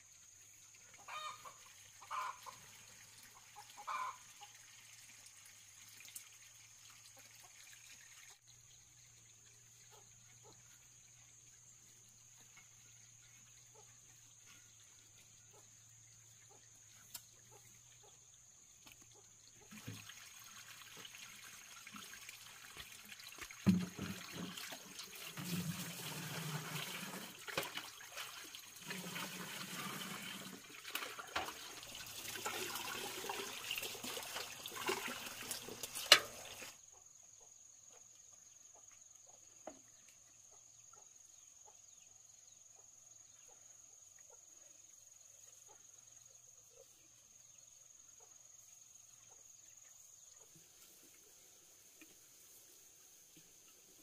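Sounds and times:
water running and splashing: 0.0 - 15.3, 19.5 - 36.8.

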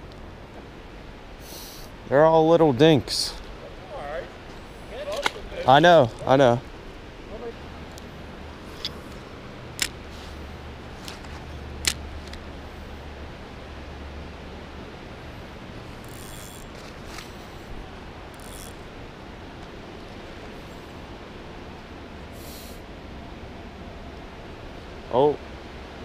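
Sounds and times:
outdoor hiss: 0.0 - 26.0
fishing reel clicks: 16.0 - 16.8, 18.3 - 18.8.

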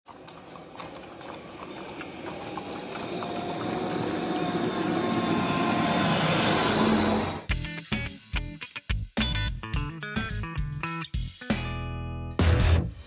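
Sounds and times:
hooves clopping on pavement: 0.1 - 3.8.

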